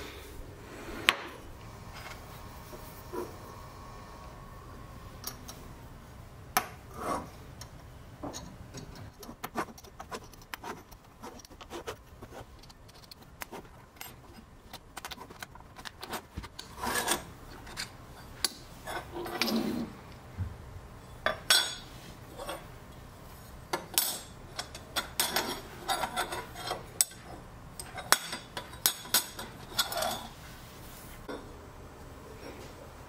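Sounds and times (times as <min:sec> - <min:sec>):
metal scraping on metal and wood: 0:00.7 - 0:05.6, 0:06.8 - 0:20.0, 0:21.1 - 0:31.4
metal parts clicking and knocking: 0:12.5 - 0:19.6.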